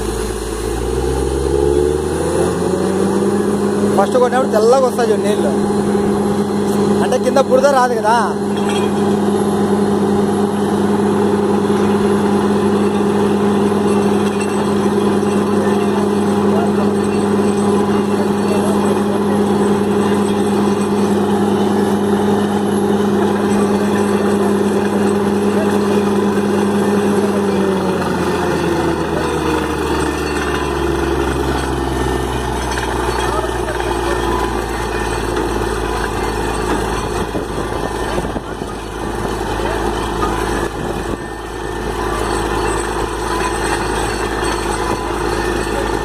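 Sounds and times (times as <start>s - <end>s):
water spraying: 0.0s - 3.9s
drilling rig engine drone: 0.0s - 46.0s.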